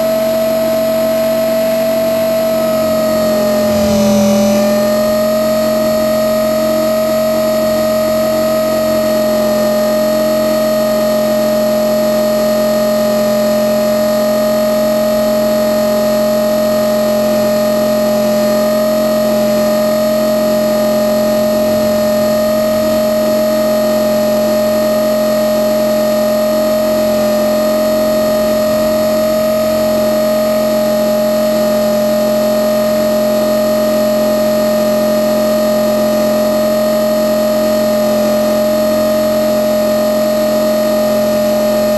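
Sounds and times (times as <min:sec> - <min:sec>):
electric motor whine: 0:00.0 - 0:10.2, 0:34.8 - 0:41.9
helicopter rotor noise: 0:02.8 - 0:05.2.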